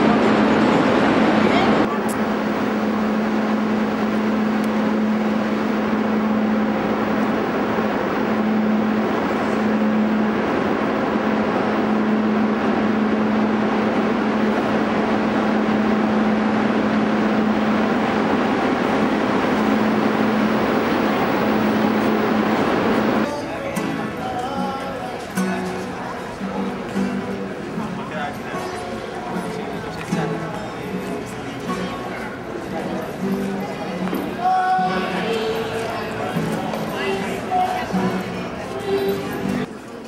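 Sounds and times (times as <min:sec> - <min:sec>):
low drone: 0:00.0 - 0:23.3
station hall rushing noise: 0:00.0 - 0:40.0.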